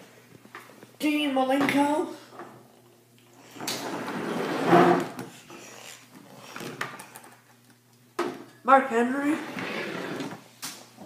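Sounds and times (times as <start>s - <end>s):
plastic figures scraping on wooden table: 3.8s - 5.2s, 9.3s - 10.4s.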